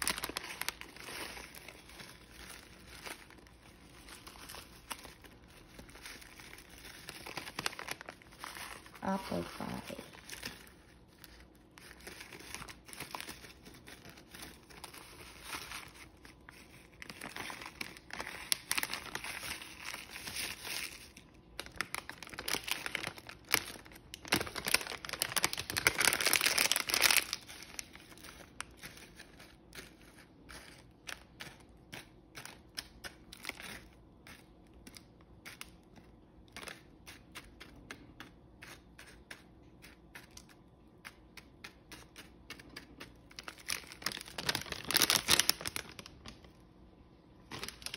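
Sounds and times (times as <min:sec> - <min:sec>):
plastic bag crinkling: 0:00.0 - 0:34.9, 0:42.0 - 0:46.6, 0:47.4 - 0:47.9.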